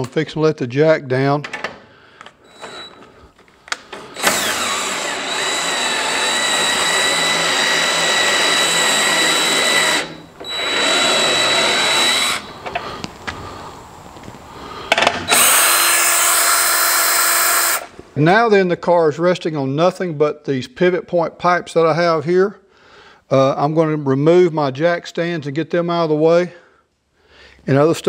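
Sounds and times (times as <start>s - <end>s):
cordless drill running: 2.5s - 3.1s, 4.0s - 12.6s, 15.3s - 17.9s.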